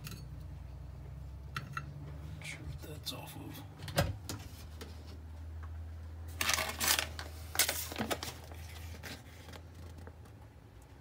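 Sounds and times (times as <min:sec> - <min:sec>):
low steady hum: 0:00.0 - 0:11.0
packaging rustling: 0:06.3 - 0:10.1.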